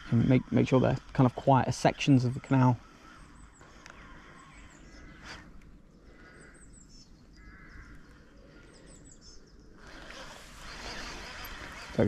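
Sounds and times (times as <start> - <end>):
birds harsh calls: 0.0 - 12.0
small high bird chirps: 2.4 - 10.0.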